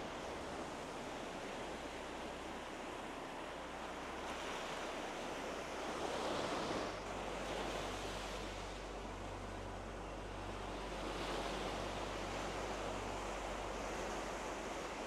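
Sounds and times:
small waves washing ashore: 0.0s - 15.0s
wind: 0.0s - 15.0s.

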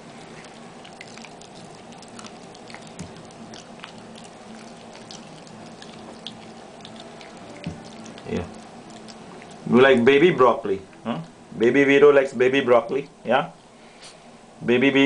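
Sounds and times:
dog crunching broccoli: 0.0s - 10.2s
low room hum: 0.0s - 15.0s.

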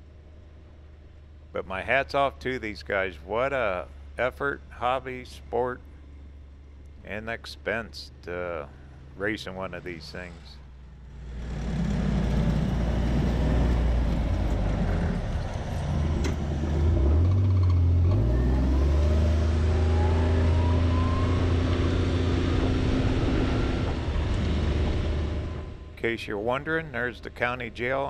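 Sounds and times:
vehicle engine accelerating: 8.1s - 26.0s.

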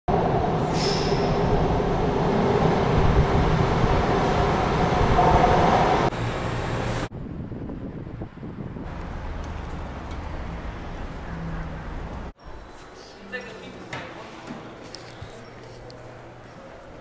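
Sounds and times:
train rumbling in tunnel: 0.1s - 12.6s.

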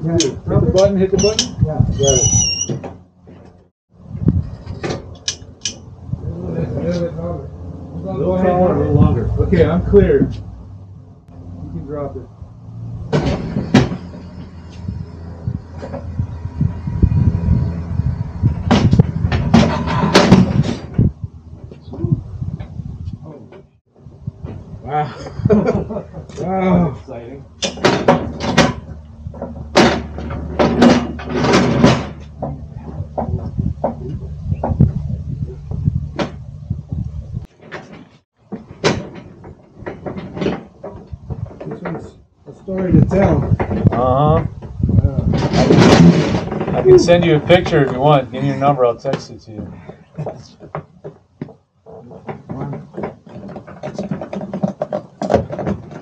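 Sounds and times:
pallet jack clunking and knocking: 13.0s - 14.6s, 18.4s - 21.1s, 27.6s - 34.9s, 37.5s - 42.1s, 45.3s - 47.2s, 51.9s - 56.0s
loud metal clanks: 13.0s - 14.9s, 18.4s - 21.2s, 27.6s - 33.4s, 45.2s - 47.8s
sharp knocks: 18.4s - 21.2s, 27.6s - 35.0s.

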